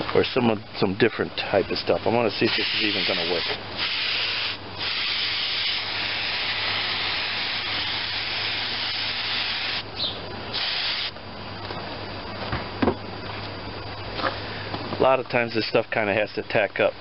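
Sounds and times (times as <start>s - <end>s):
aerosol can spraying: 2.5s - 9.8s, 10.6s - 11.1s.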